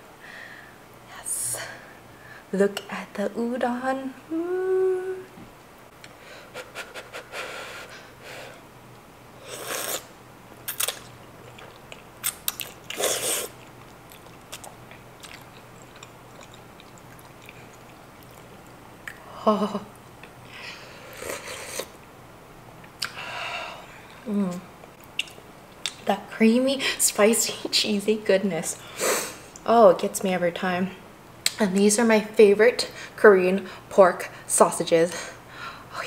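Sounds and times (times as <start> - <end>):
person humming with enjoyment: 4.3 - 5.3
slurping noodles: 9.4 - 10.1, 12.5 - 14.5, 21.0 - 22.0
chewing: 10.7 - 19.2.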